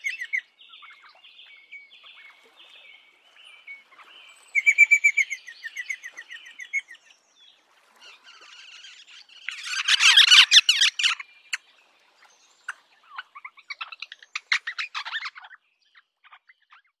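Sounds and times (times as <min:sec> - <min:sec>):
parrots chattering calls: 0:09.5 - 0:11.2.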